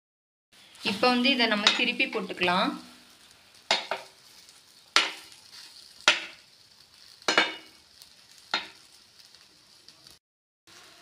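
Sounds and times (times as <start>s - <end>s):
faint frying sizzle: 0.6s - 11.0s
spatula clinking on frying pan: 3.7s - 4.1s, 7.2s - 7.8s.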